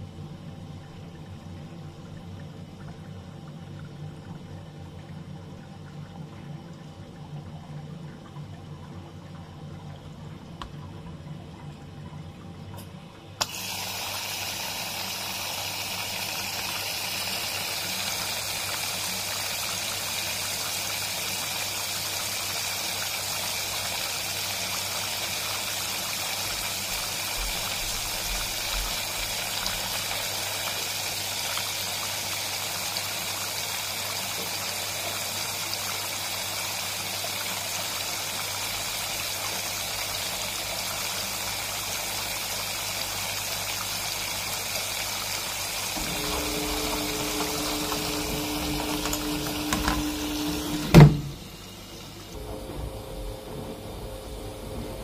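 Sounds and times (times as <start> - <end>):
water rushing: 42.6 - 55.0
low hum: 46.0 - 55.0.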